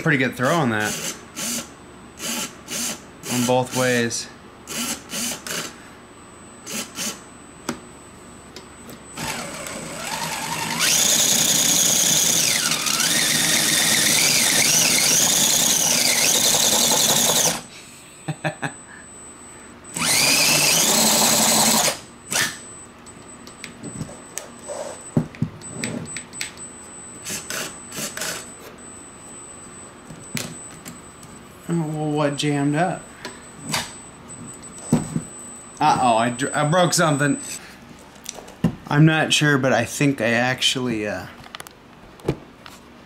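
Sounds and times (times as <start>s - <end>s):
electric motor whining: 9.2s - 17.7s, 19.9s - 22.6s.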